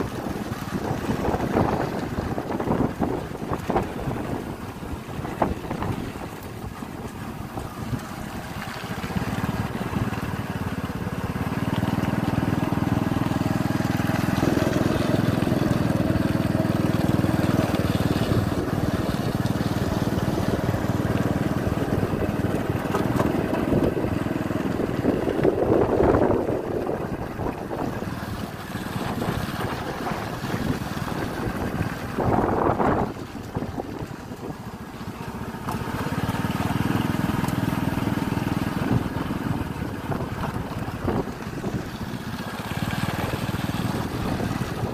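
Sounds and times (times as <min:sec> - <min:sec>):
wind rushing over microphone: 0:00.0 - 0:08.4, 0:18.0 - 0:34.6, 0:38.4 - 0:44.9
small vehicle engine running: 0:00.0 - 0:44.9.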